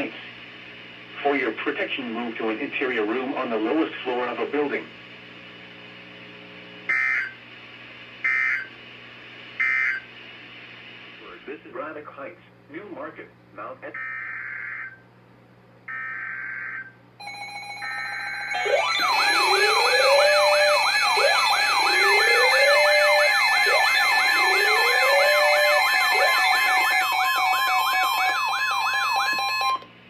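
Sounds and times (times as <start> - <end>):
steady warning alarm tone: 6.9 - 7.4, 8.2 - 8.7, 9.6 - 10.0, 13.9 - 15.0, 15.9 - 29.9
warbling sirens and beeps: 6.9 - 7.4, 8.2 - 8.7, 9.6 - 10.0, 13.9 - 15.0, 15.9 - 29.9.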